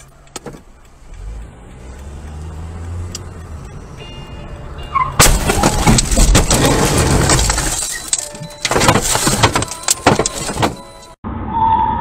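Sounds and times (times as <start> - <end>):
car scraping and crunching: 4.8 - 11.2.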